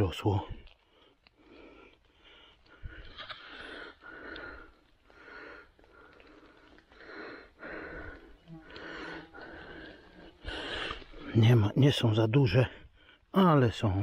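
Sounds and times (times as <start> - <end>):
man breathing hard: 0.8 - 11.4.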